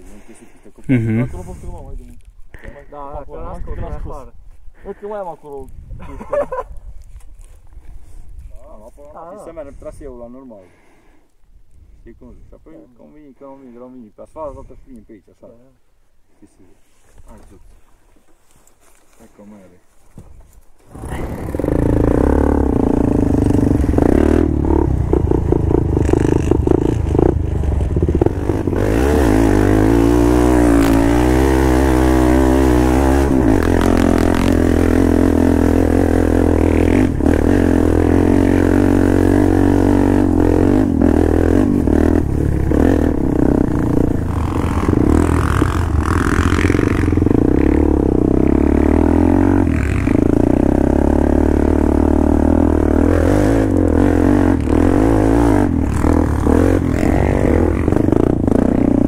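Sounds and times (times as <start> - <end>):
off-road vehicle engine revving: 20.9 - 59.0.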